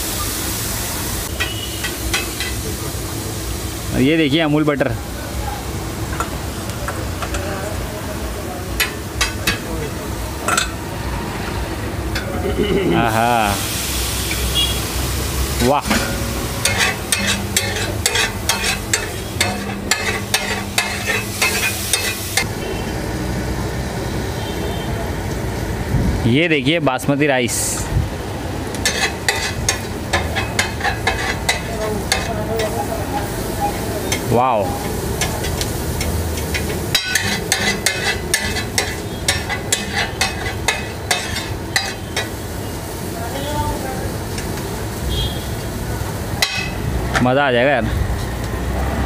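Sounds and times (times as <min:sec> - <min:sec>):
food sizzling: 0:00.0 - 0:25.9, 0:27.5 - 0:49.0
metal spatula scraping on griddle: 0:01.3 - 0:02.6, 0:15.8 - 0:22.5, 0:28.7 - 0:42.8, 0:46.4 - 0:46.8.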